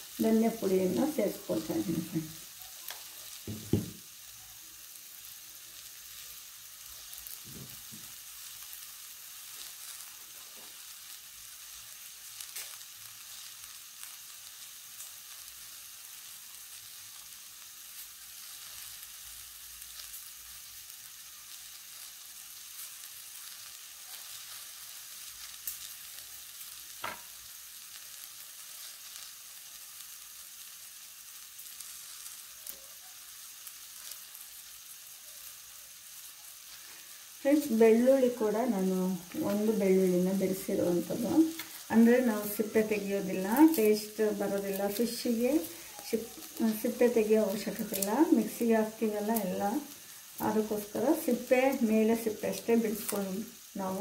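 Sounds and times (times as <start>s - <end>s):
food sizzling in oil: 0.0s - 54.0s
brief thump: 3.5s - 4.0s.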